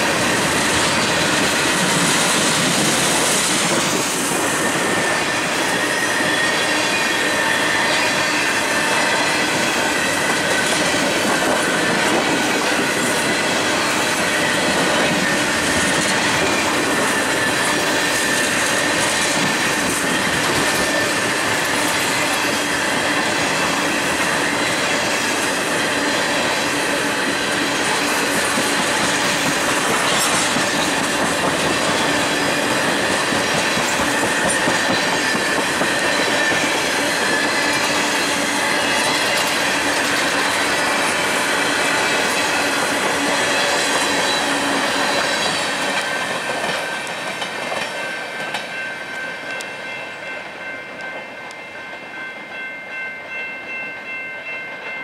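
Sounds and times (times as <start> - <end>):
train wheels rumbling and clattering: 0.0 - 52.0
high wheel squeal: 4.1 - 47.4.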